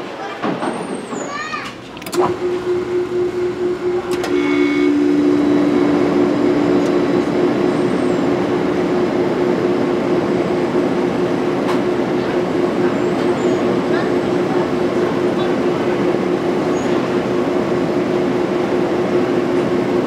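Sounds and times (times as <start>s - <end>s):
click: 1.6s - 2.3s, 4.1s - 4.4s
machine hum: 1.7s - 20.0s
whirring rush: 1.7s - 20.0s
lower hum: 1.8s - 16.6s.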